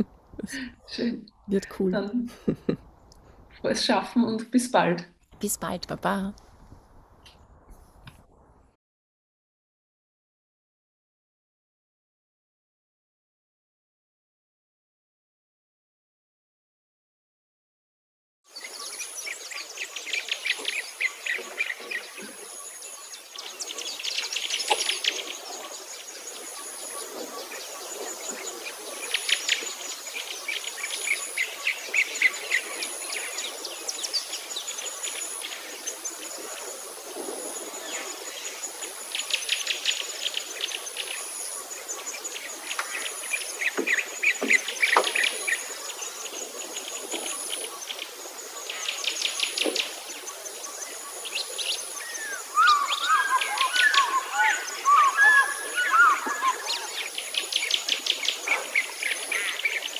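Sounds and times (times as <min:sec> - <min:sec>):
birds singing trills: 0:18.5 - 0:59.9.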